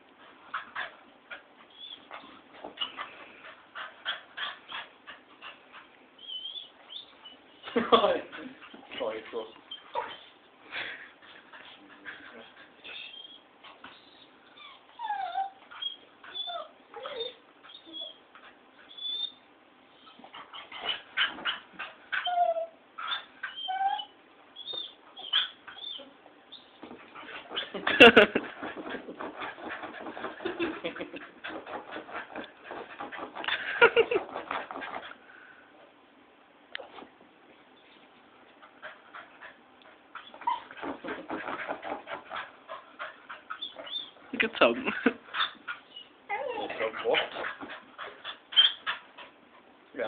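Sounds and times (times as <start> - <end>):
dog whining yelps: 1.7 - 3.0, 6.2 - 7.6, 13.1 - 18.2, 18.9 - 26.8, 40.2 - 40.9, 43.5 - 44.2, 45.4 - 49.0.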